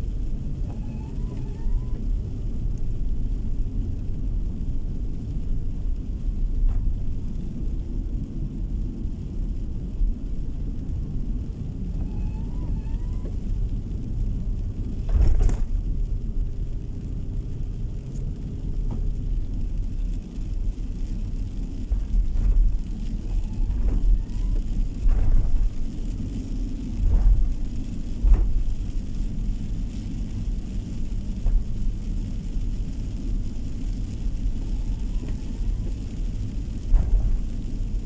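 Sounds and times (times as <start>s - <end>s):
car tyres and engine rumbling: 0.0s - 38.0s.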